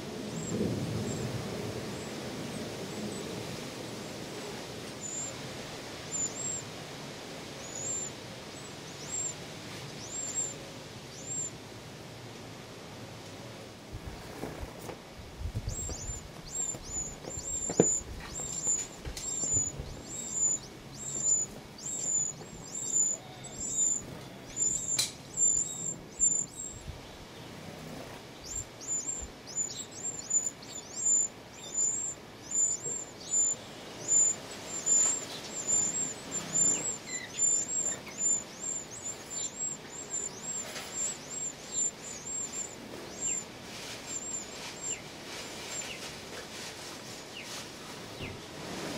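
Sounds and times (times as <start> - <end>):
nestlings cheeping: 4.9 - 5.4, 6.0 - 6.7, 7.6 - 11.6, 15.6 - 48.4.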